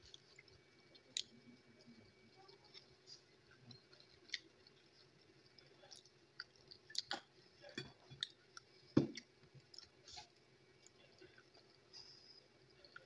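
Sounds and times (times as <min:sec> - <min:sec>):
chewing: 0:00.0 - 0:13.0.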